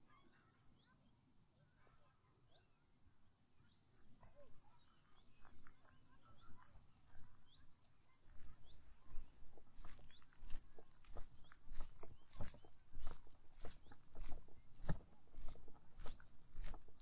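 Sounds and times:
birds chirping: 0:00.0 - 0:03.0, 0:03.6 - 0:17.0
footsteps crunching on path: 0:04.8 - 0:17.0.

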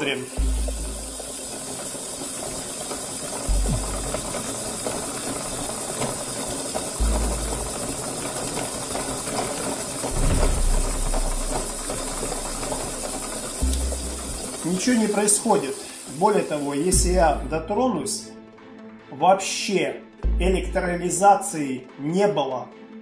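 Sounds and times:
hand-cranked disks whirring: 0:00.0 - 0:17.6
low rumble: 0:00.4 - 0:01.3, 0:03.5 - 0:04.4, 0:10.1 - 0:14.4.

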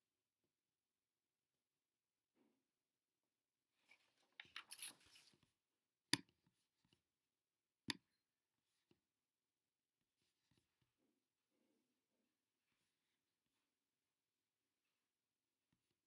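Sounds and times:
paper rustling: 0:04.0 - 0:05.4.

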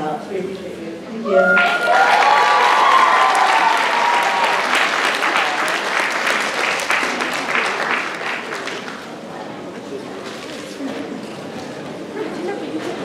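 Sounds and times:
cheering voices: 0:01.3 - 0:07.3
audience applauding: 0:01.6 - 0:09.1.

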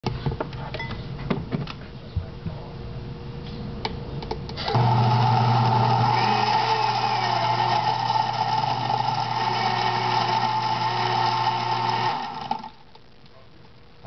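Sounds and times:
blender running: 0:04.6 - 0:12.8.

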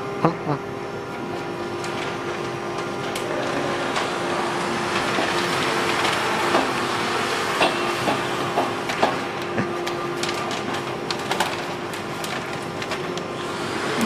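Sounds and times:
machine hum: 0:00.0 - 0:14.0
plastic film rustling and crinkling: 0:03.9 - 0:07.4, 0:09.2 - 0:13.6.

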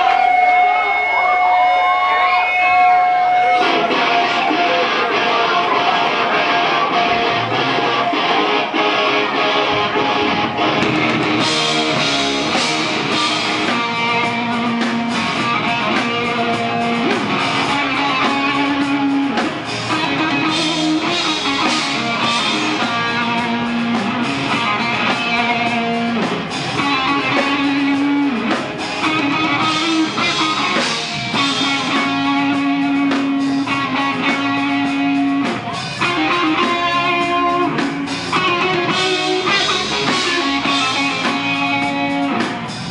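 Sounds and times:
bass guitar: 0:00.0 - 0:42.9
drums: 0:00.0 - 0:42.9
electric guitars: 0:00.0 - 0:42.9.

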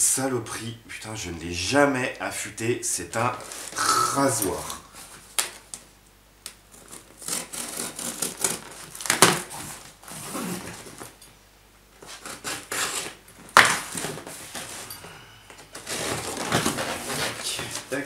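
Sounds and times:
knife slitting tape and cardboard: 0:06.7 - 0:11.0, 0:12.0 - 0:14.8, 0:15.8 - 0:18.0
cardboard scraping and rustling: 0:06.7 - 0:11.2, 0:12.0 - 0:14.9, 0:15.7 - 0:18.0.

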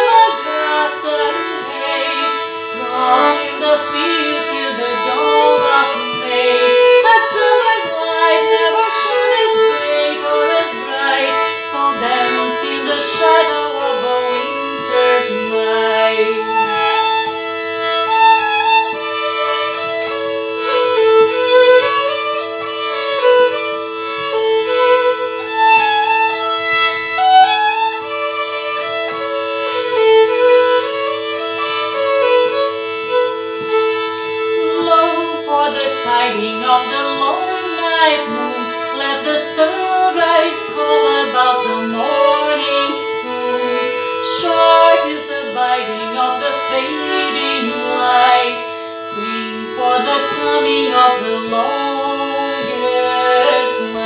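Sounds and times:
lower accompanying line: 0:00.0 - 0:18.0
fiddle melody: 0:00.0 - 0:54.0.

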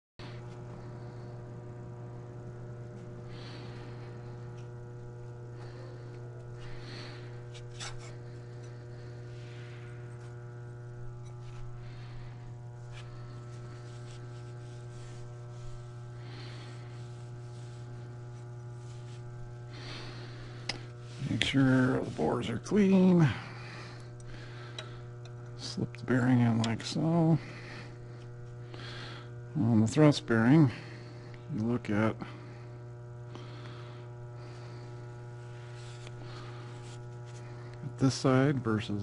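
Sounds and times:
low hum: 0:00.2 - 0:39.0
rag rubbing metal: 0:07.5 - 0:08.3.

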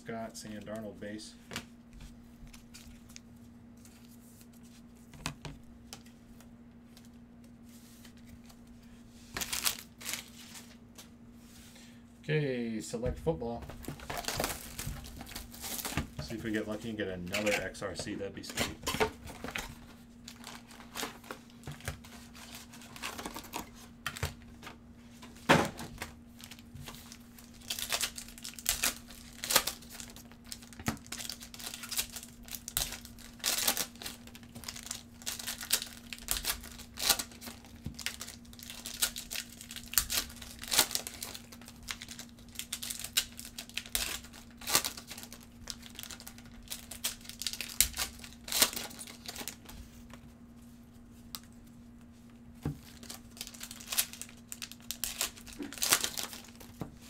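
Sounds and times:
foil wrappers tearing and crinkling: 0:09.3 - 0:10.8, 0:13.8 - 0:17.8, 0:18.4 - 0:24.7, 0:25.7 - 0:49.7, 0:52.8 - 0:57.0.

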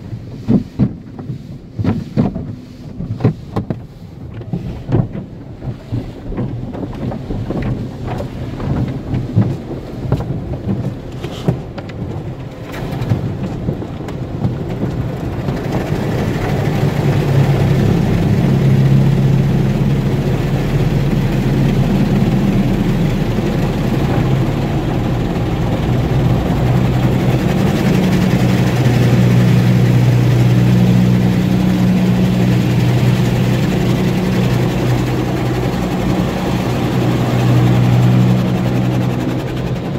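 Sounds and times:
water jets spraying on car: 0:00.0 - 0:39.9
low steady hum: 0:12.0 - 0:39.9.

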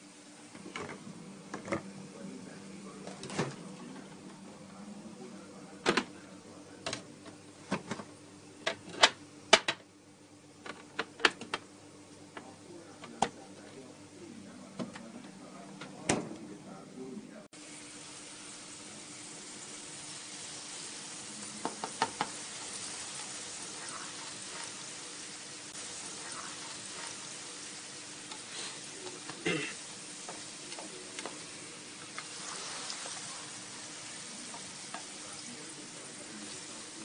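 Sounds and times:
curry sizzling and bubbling: 0:17.6 - 0:37.0.

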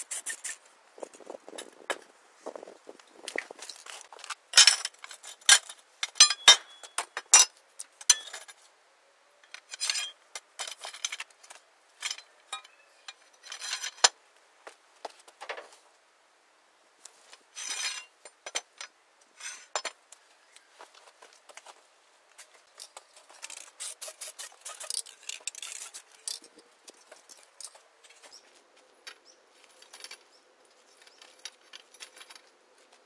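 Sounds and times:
metal pipes clinking: 0:04.5 - 0:08.6.

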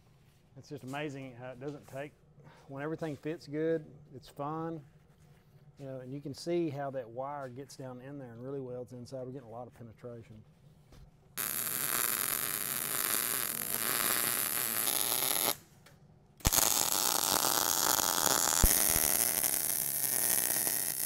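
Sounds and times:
welding arc running: 0:11.4 - 0:15.6, 0:16.4 - 0:21.0
welding arc striking click: 0:11.4 - 0:15.6, 0:16.4 - 0:21.0.

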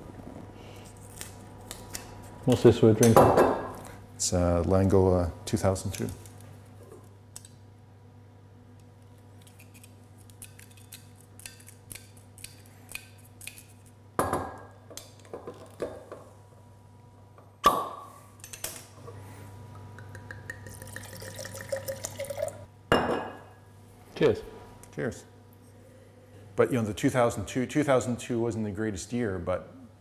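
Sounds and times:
wine pouring into glass: 0:20.4 - 0:22.7.

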